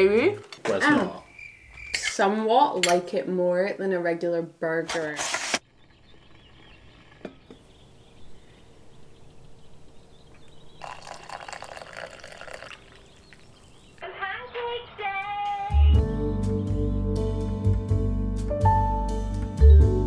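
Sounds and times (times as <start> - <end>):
music with singing: 14.1 - 20.0.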